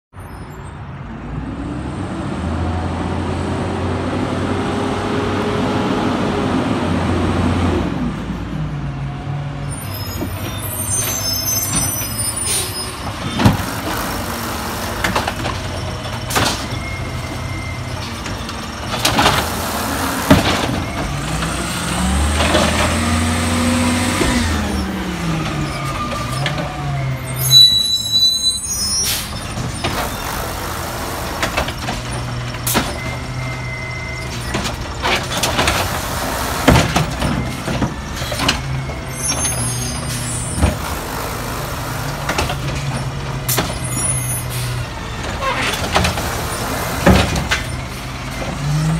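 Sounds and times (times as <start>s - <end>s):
garbage truck engine revving: 11.1s - 27.5s, 28.8s - 48.9s.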